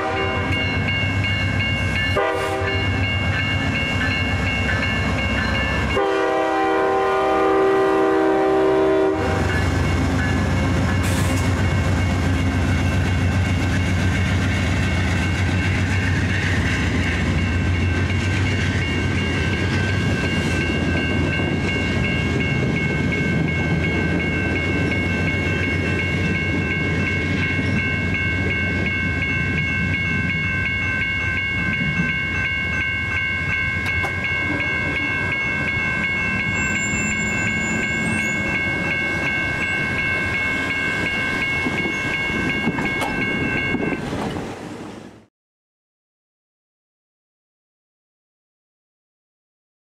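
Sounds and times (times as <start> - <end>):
train coaches rolling on rails: 0.0 - 45.2
diesel locomotive rumbling: 0.0 - 45.3
level-crossing bell ringing: 0.2 - 6.2, 14.9 - 44.0.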